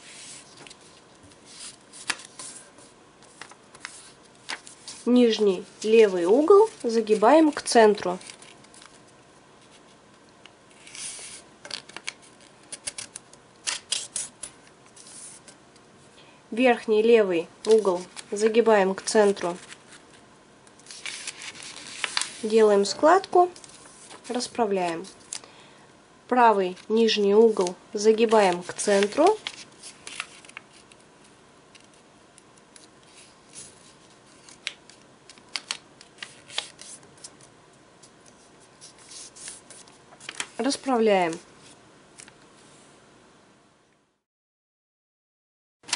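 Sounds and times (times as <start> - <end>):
paper sliding rustle: 0.0 - 10.0, 10.8 - 13.1, 13.7 - 15.6, 20.8 - 22.6, 23.5 - 25.4, 26.8 - 31.0, 32.8 - 37.4, 38.2 - 40.8
fingers scraping paper fold: 20.8 - 22.5.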